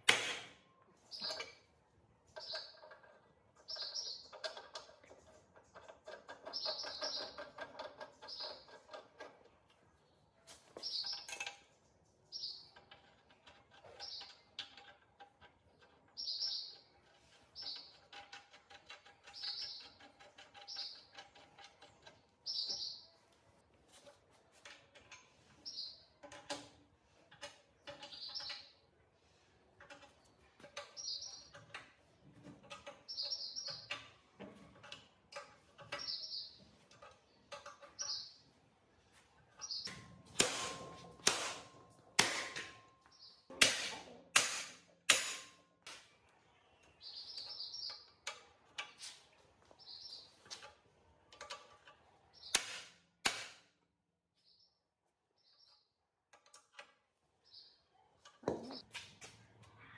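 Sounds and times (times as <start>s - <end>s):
sharp knocks and taps: 58.3s - 59.4s.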